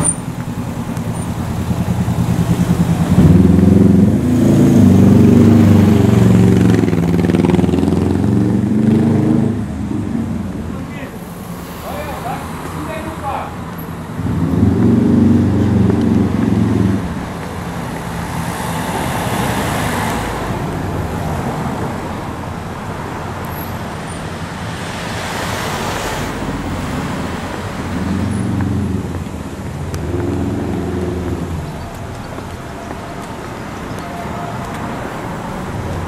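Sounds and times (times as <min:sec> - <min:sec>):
cars passing: 0:00.0 - 0:36.0
low engine hum: 0:25.7 - 0:36.0.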